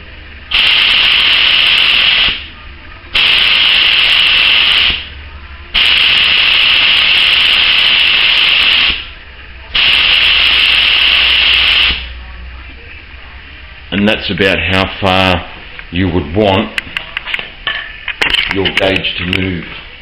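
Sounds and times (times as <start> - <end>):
compressed air hissing from spray gun: 0.5 - 2.5, 3.1 - 9.1, 9.7 - 12.1.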